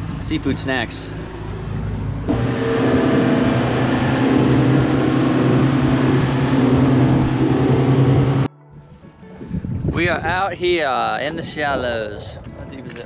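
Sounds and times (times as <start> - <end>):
wind: 0.0 - 13.0
outboard motors droning: 1.1 - 8.5.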